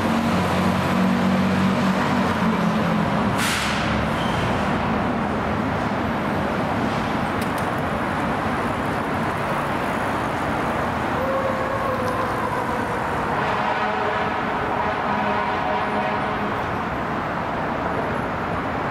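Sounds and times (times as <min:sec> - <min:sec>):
diesel truck engines rumbling: 0:00.0 - 0:18.9
street traffic: 0:00.0 - 0:18.9.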